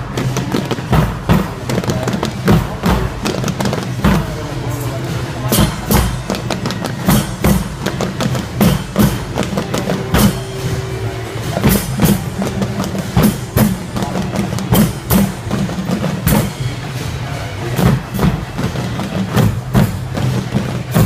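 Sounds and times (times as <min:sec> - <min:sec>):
barrel drums beating: 0:00.0 - 0:21.0
faint held note: 0:09.6 - 0:12.5.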